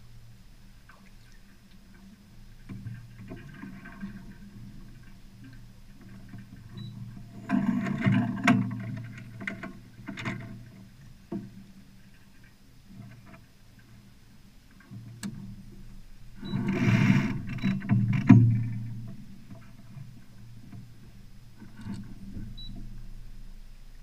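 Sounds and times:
water washing along hull: 0:00.0 - 0:23.6
sharp clicks and knocks: 0:16.4 - 0:19.7, 0:21.6 - 0:23.0.

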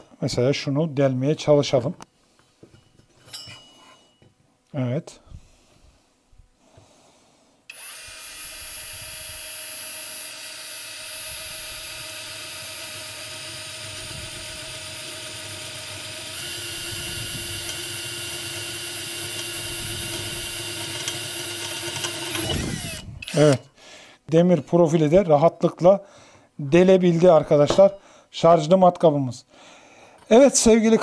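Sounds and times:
cordless drill drilling into metal: 0:07.7 - 0:23.6.

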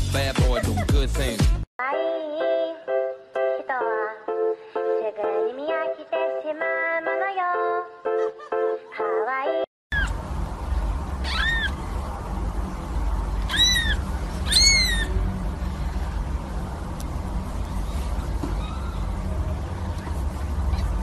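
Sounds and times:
steady low rumble: 0:09.9 - 0:21.0
kitten mewing: 0:13.5 - 0:15.2.

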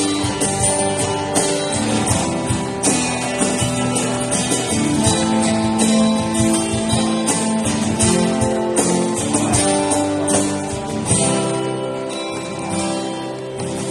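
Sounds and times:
strummed guitar music: 0:00.0 - 0:13.9.

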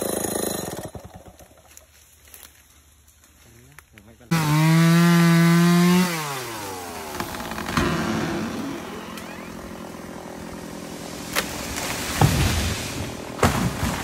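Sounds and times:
chainsaw engine: 0:00.0 - 0:01.8, 0:04.3 - 0:13.6.

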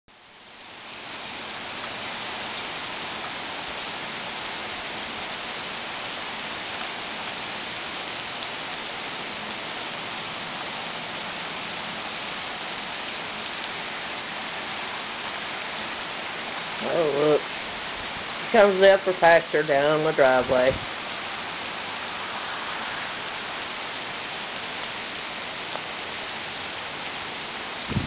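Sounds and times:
heavy rain: 0:00.1 - 0:28.0.

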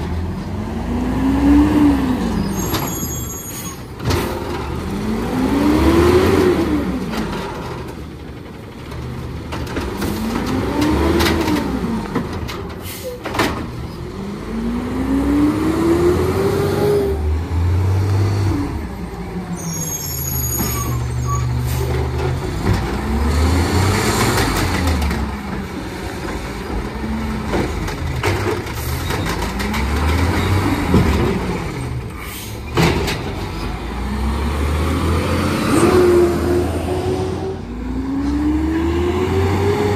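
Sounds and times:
garbage truck engine revving: 0:04.2 - 0:12.4, 0:13.8 - 0:39.9
air brakes hissing: 0:12.8 - 0:13.2, 0:32.1 - 0:32.7.

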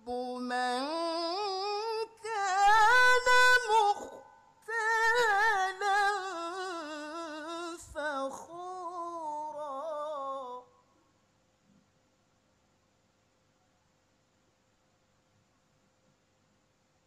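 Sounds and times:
man reciting melodically: 0:00.0 - 0:10.2.

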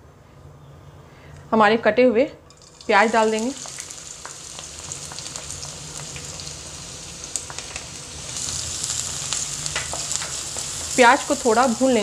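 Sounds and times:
oil popping and crackling: 0:02.5 - 0:12.0
onions sizzling in hot oil: 0:02.5 - 0:12.0.

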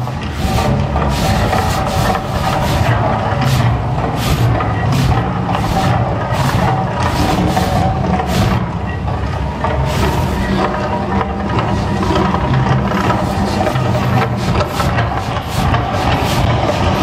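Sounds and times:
hissing fire-jet bursts: 0:00.0 - 0:08.7, 0:09.8 - 0:10.5, 0:13.1 - 0:17.0
deep continuous rumble: 0:00.0 - 0:17.0.

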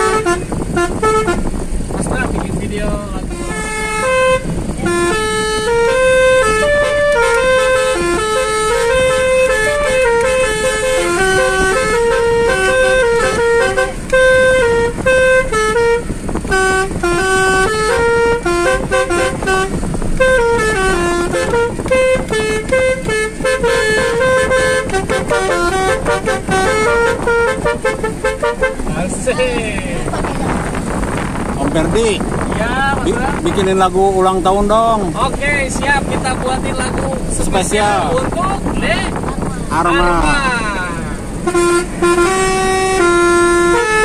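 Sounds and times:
musical air horns playing tune: 0:00.0 - 0:02.4, 0:03.2 - 0:31.5, 0:40.9 - 0:44.0.

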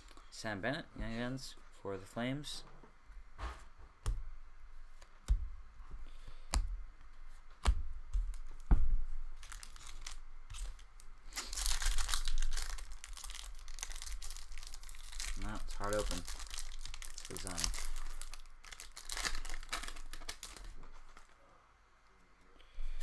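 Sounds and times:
wrapper tearing and crinkling: 0:09.4 - 0:21.4.

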